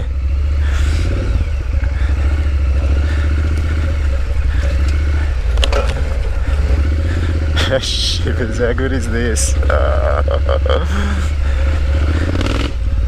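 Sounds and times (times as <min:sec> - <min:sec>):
motorcycle engine running: 0:00.0 - 0:13.0
stones clattering under tyres: 0:04.8 - 0:06.5.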